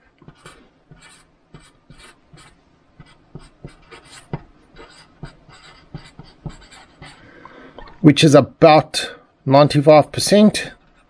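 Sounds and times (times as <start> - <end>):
pen scratching on paper: 0.2 - 7.2.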